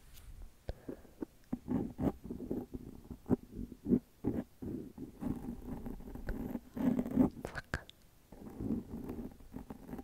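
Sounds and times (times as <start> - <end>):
soft mouth sounds: 0.7 - 10.0
faint whispering: 6.2 - 10.0.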